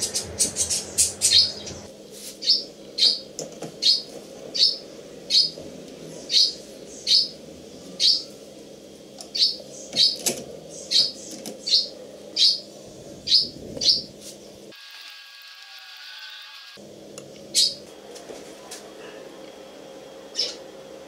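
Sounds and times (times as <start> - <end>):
bird chirping: 0.0 - 8.4, 9.2 - 14.6, 17.5 - 17.8, 20.3 - 20.6
steady low hum: 0.0 - 14.8, 16.8 - 21.0.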